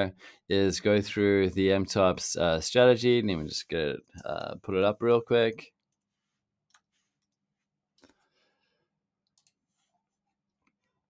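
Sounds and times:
faint computer mouse clicks: 0:09.2 - 0:09.6.

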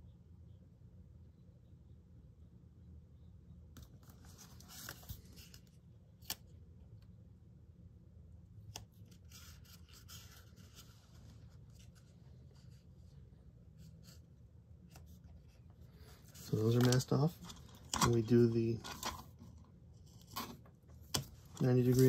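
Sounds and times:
tape and paper crinkling: 0:16.1 - 0:22.0.

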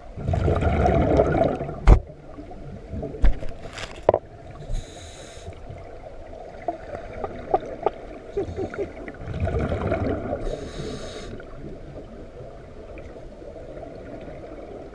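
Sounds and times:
bubbles rushing underwater: 0:00.0 - 0:03.4, 0:06.3 - 0:10.7.

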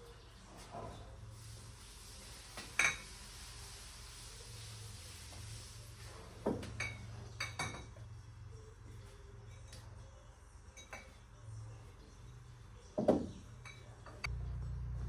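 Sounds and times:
glass bottles clinking: 0:06.6 - 0:08.0
faint low hum: 0:07.2 - 0:15.0
bottles knocking on wooden shelving: 0:13.0 - 0:13.4.

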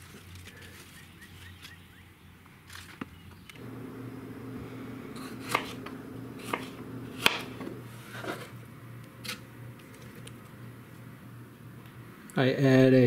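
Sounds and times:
low steady hum: 0:03.6 - 0:13.0
knife knocking on cutting board: 0:05.4 - 0:07.8.

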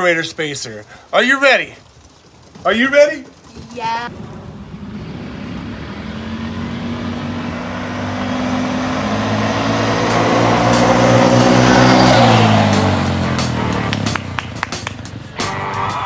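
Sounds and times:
atv engine at full throttle passing: 0:01.9 - 0:16.0.

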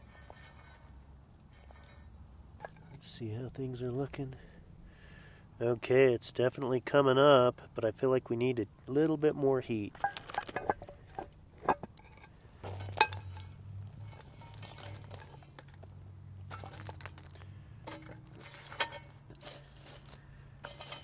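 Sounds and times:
coals clinking on iron lid: 0:09.9 - 0:21.0.

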